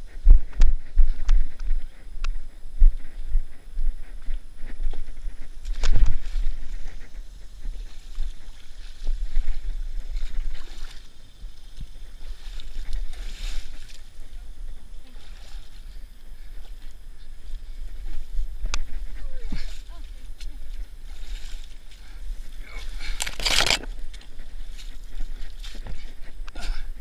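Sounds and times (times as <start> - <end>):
low microphone rumble: 0.0 - 27.0
legs sloshing through water: 7.7 - 14.3.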